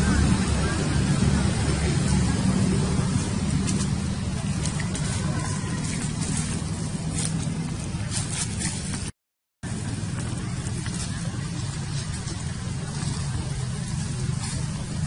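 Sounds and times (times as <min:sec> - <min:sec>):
low mechanical hum: 0:00.0 - 0:15.0.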